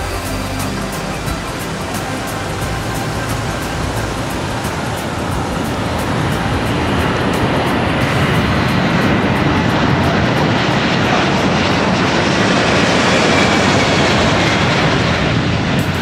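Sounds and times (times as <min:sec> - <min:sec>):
jet engine rushing: 0:00.0 - 0:16.0.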